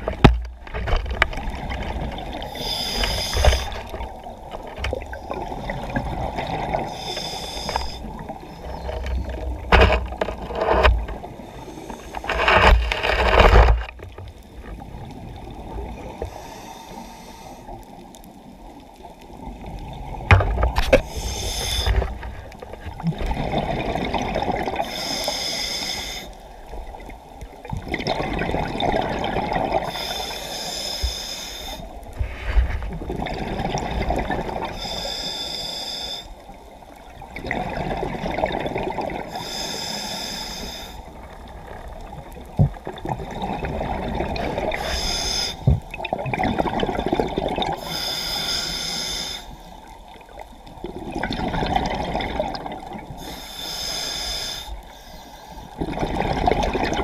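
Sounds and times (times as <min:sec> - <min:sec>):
regulator inhale hiss: 0:02.4 - 0:04.0, 0:06.8 - 0:08.2, 0:11.4 - 0:12.3, 0:16.2 - 0:17.9, 0:20.9 - 0:22.2, 0:24.8 - 0:26.5, 0:29.8 - 0:32.5, 0:34.7 - 0:36.6, 0:39.3 - 0:41.2, 0:44.6 - 0:45.8, 0:47.8 - 0:49.9, 0:53.2 - 0:55.8
exhaled bubbles bursting: 0:22.9 - 0:24.8, 0:27.8 - 0:29.8, 0:32.9 - 0:34.7, 0:42.5 - 0:44.8, 0:45.8 - 0:47.8, 0:50.8 - 0:53.1, 0:55.8 - 0:57.0.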